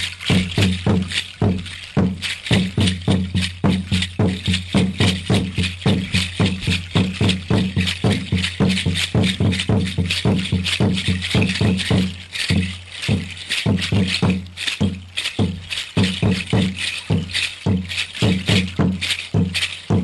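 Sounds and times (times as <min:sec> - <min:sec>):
hand rattle shaking: 0:00.0 - 0:20.0
deep drum beating: 0:00.2 - 0:20.0.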